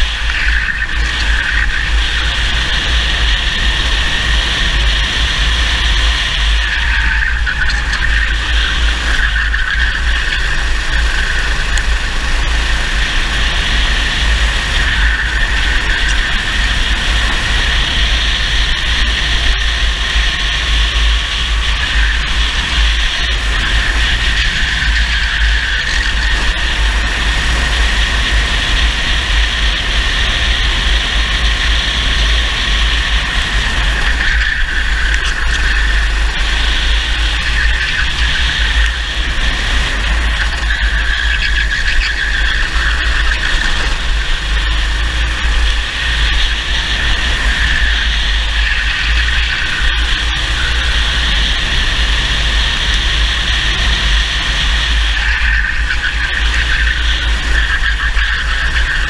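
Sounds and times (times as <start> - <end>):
kart engine running hard: 0.0 - 59.0
low rumble: 0.0 - 59.0.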